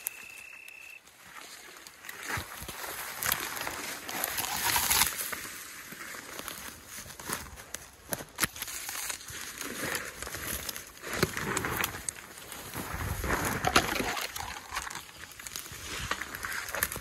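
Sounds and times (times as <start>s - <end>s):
brush rustling and cracking underfoot: 0.0s - 17.0s
twigs clicking and snapping: 1.6s - 17.0s.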